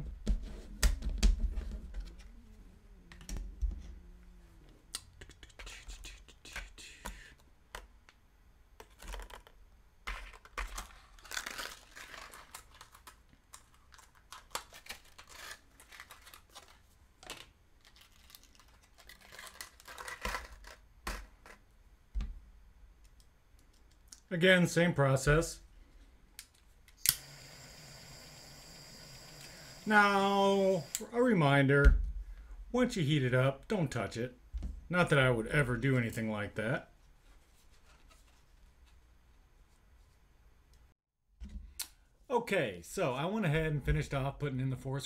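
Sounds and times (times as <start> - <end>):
plastic parts clicking and knocking: 8.8 - 11.0.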